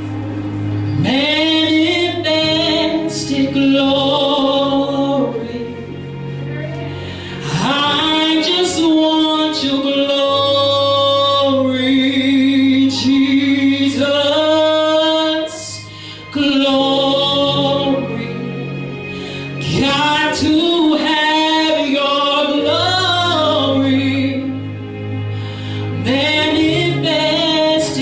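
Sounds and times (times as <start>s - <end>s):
sustained accompaniment chords: 0.0s - 28.0s
woman singing: 1.0s - 6.0s, 7.4s - 18.8s, 19.6s - 24.7s, 25.9s - 28.0s.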